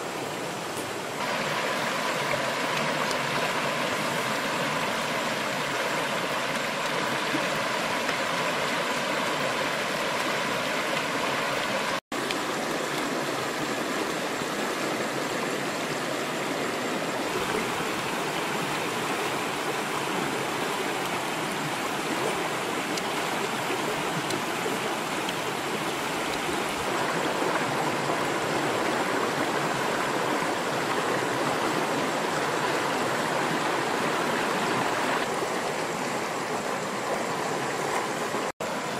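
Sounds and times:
stream gurgling over rocks: 0.0 - 38.9.

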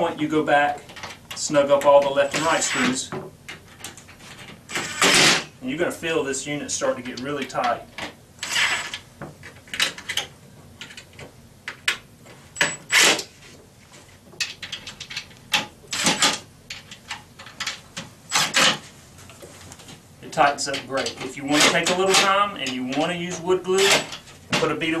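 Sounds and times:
impact driver bursts: 4.7 - 5.5.

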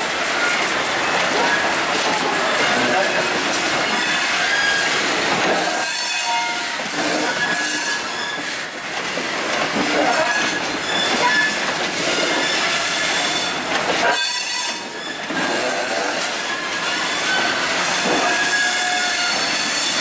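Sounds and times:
train wheels rolling on rails: 0.0 - 20.0
wheels squealing: 9.8 - 20.0.

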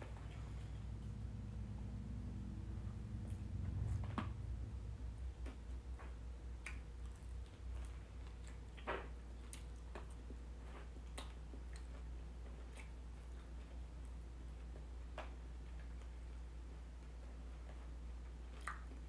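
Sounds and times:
steady low hum: 0.0 - 19.0
chewing: 5.4 - 16.4, 17.0 - 19.0.

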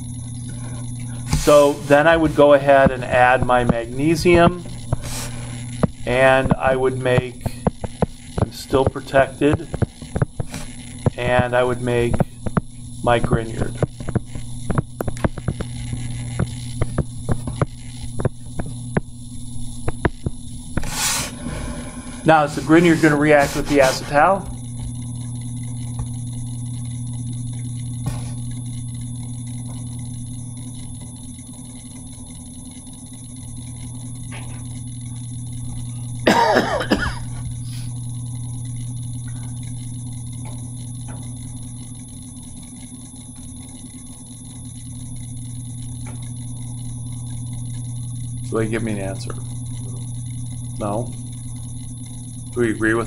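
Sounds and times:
electrical mains hum: 0.0 - 53.0
person coughing: 36.2 - 37.4.

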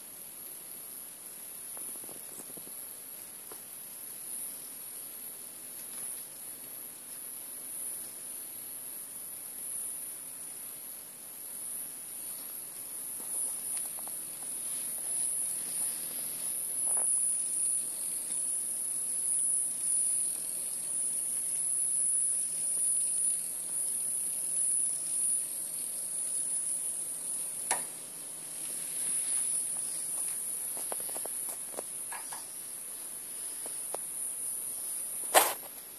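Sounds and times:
sharp clicks: 27.7 - 27.9.

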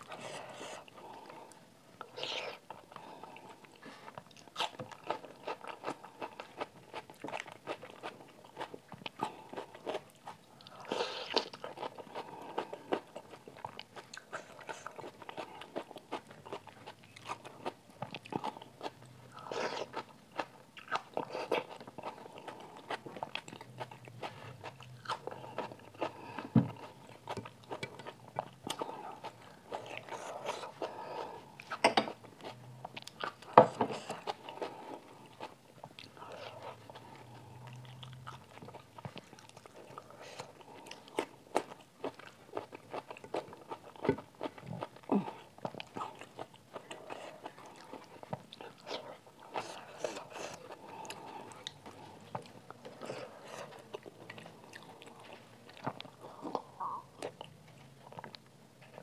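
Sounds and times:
person chewing with mouth clicks: 0.0 - 59.0.

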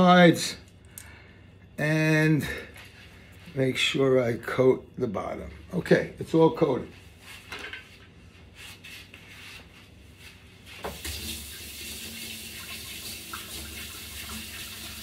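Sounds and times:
tap water running into sink: 10.9 - 15.0.

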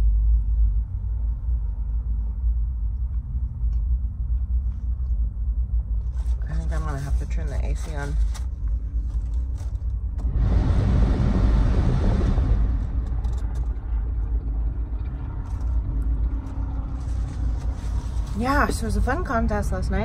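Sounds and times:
car engine idling: 6.1 - 20.0
air conditioning blower rushing: 6.2 - 19.0.

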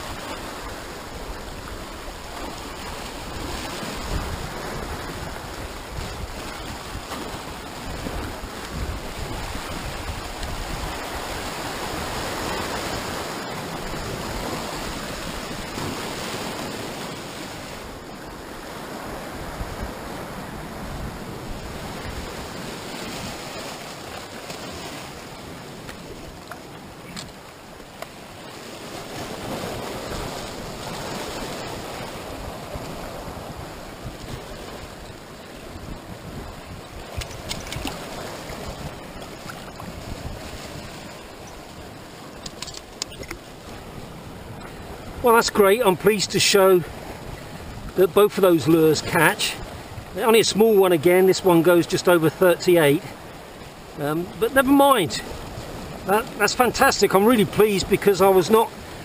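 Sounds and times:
wind on microphone: 0.0 - 24.2, 28.7 - 45.3, 46.8 - 48.0, 49.5 - 50.2
surf breaking over rocks: 0.0 - 59.0.

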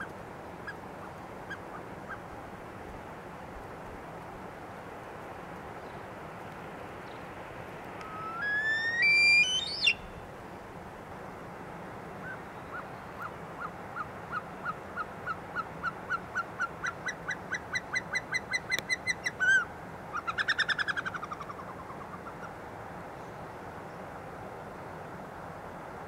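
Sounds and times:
bird whistling notes: 8.0 - 10.2.

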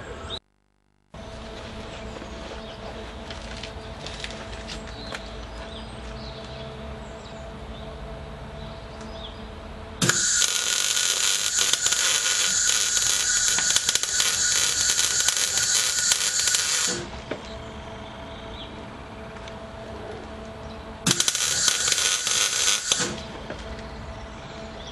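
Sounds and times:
faint steady hum: 0.0 - 24.9
welder arc crackling and hissing: 10.0 - 17.5, 21.0 - 23.9.

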